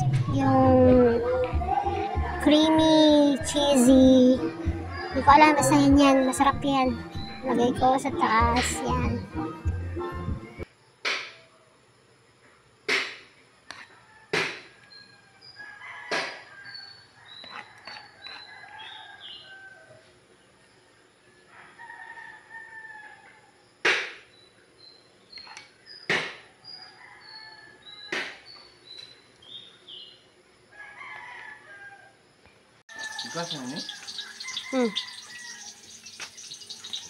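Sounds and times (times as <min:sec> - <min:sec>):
roosters crowing: 0:13.9 - 0:20.2, 0:21.5 - 0:23.4, 0:30.7 - 0:32.2, 0:32.9 - 0:37.0
short high bird chirps: 0:32.9 - 0:37.0.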